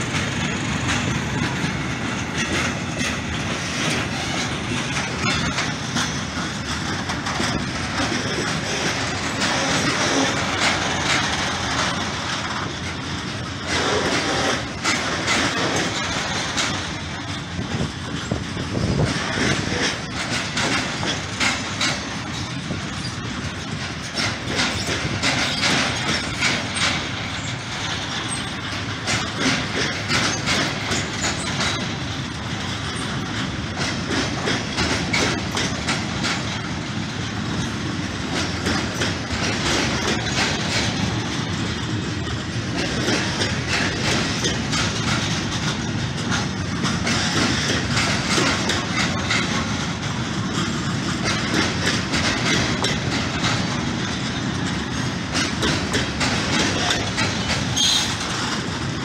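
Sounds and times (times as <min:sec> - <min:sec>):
train wheels clattering over rail joints: 0:00.0 - 0:59.0.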